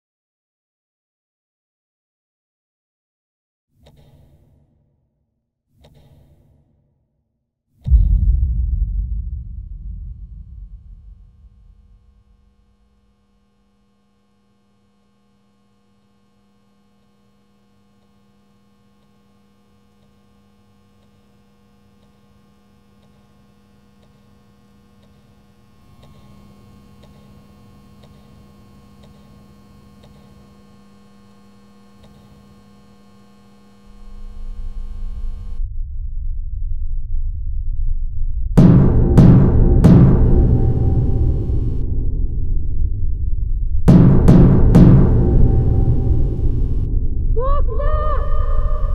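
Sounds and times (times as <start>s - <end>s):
deep rumble: 7.9s - 13.1s, 34.0s - 48.9s
electrical hum: 7.9s - 35.6s, 40.2s - 48.9s.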